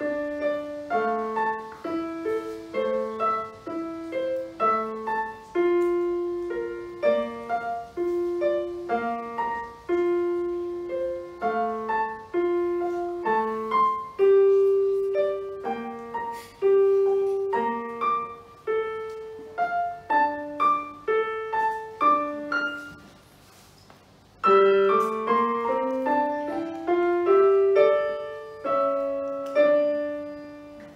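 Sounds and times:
digital piano melody: 0.0 - 23.4, 24.3 - 30.9.

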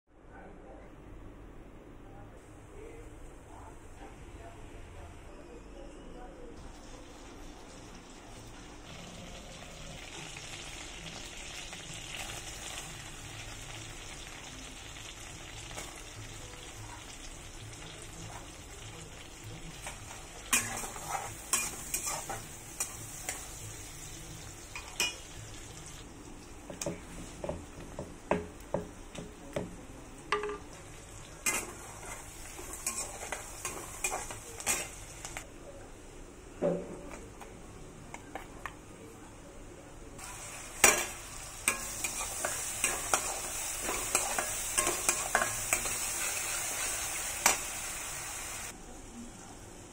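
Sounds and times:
onions sizzling in hot oil: 6.6 - 29.2, 30.1 - 35.5, 40.2 - 48.8
metal spatula scraping a pan: 19.8 - 23.5.

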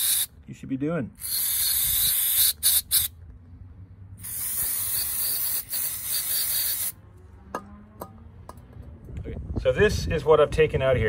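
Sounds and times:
aerosol spray hissing: 1.2 - 3.1, 4.2 - 6.9.

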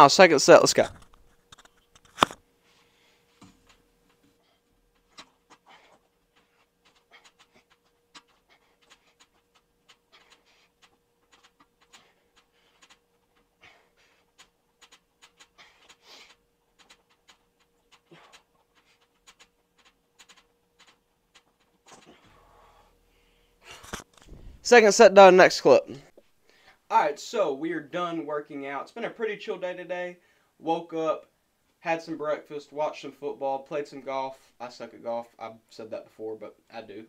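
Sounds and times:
faint steady hum: 0.0 - 37.0
man panting: 4.4 - 19.5, 21.9 - 24.0.

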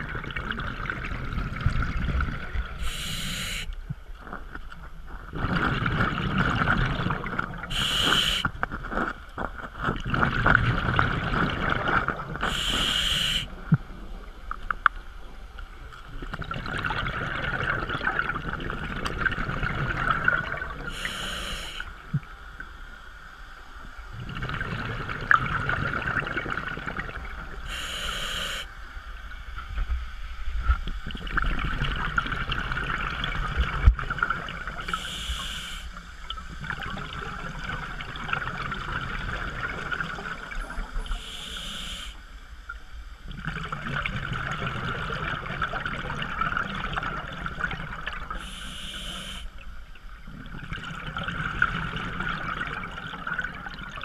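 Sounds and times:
crackling exhaust bubbles: 0.0 - 54.0
regulator inhale hiss: 2.8 - 3.8, 7.7 - 8.6, 12.4 - 13.5, 20.9 - 22.0, 27.6 - 28.8, 34.8 - 36.3, 41.1 - 42.4, 48.4 - 49.6.

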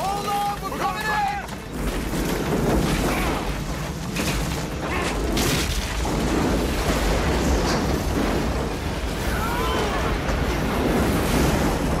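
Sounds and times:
crashing impacts: 0.0 - 12.0
heavy continuous rumble: 0.0 - 12.0.

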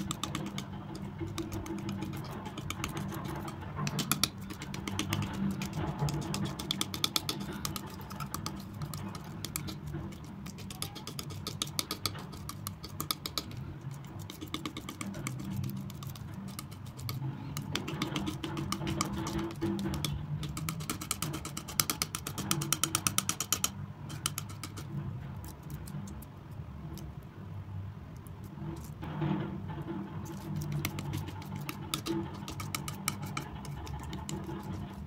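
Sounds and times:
sticky paint clicks: 0.0 - 26.2
palette knife scraping paint: 0.0 - 26.3, 28.4 - 35.0.

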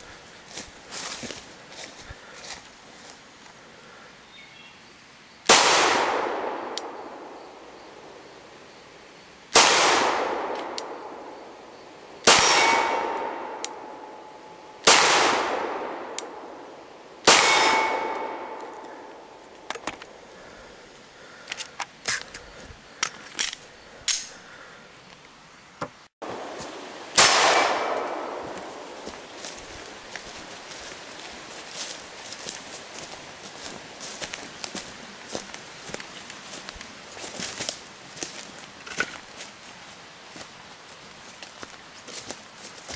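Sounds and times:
pistol shots with echo: 5.5 - 7.3, 9.5 - 11.3, 12.2 - 14.2, 14.8 - 16.4, 17.2 - 18.6, 27.2 - 29.0
steel targets ringing: 12.3 - 13.6.

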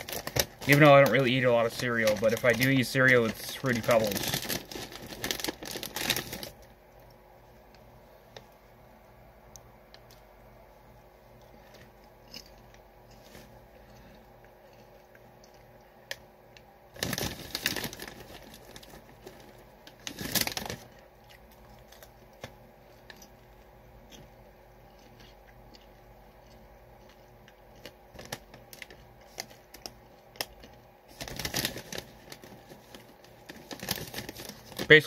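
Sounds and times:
plastic snack bag crinkling: 0.0 - 7.0, 16.9 - 23.4, 24.9 - 35.0.

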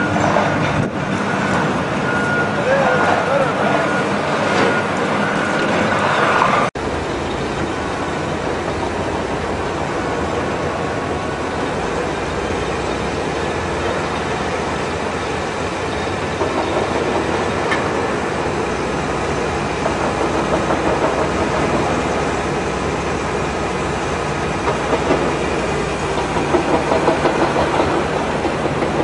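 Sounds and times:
drainage pump running: 6.8 - 29.0.

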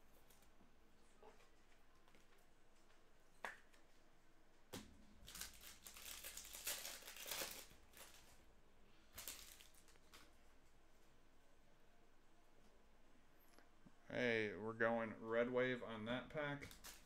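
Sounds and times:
card pack wrapper ripping: 5.2 - 8.4, 9.1 - 10.3
wrapper crinkling: 5.2 - 8.4, 9.1 - 10.4, 16.6 - 17.0.

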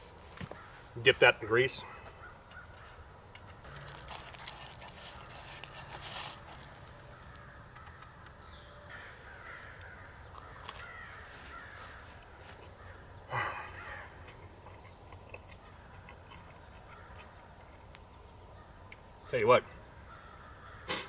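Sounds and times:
bird calls: 4.9 - 21.0.

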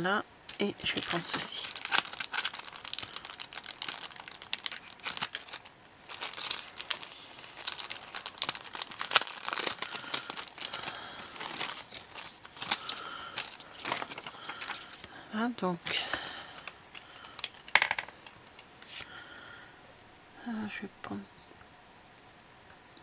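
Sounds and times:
cellophane crinkling: 0.5 - 15.2, 15.8 - 19.1.

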